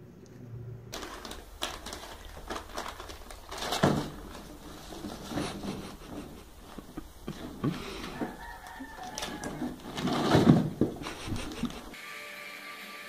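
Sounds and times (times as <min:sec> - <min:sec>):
bag rustling: 0:00.9 - 0:12.0
knocks and scrapes on plastic containers: 0:03.5 - 0:11.9.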